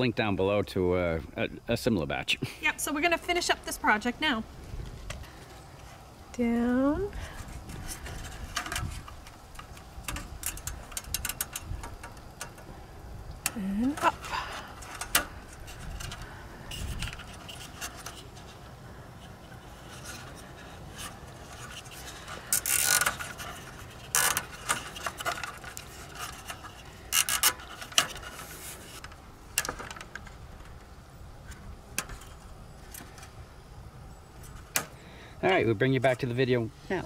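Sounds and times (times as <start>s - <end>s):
plastic scraping on plastic and mesh: 7.2s - 12.8s, 13.4s - 33.4s.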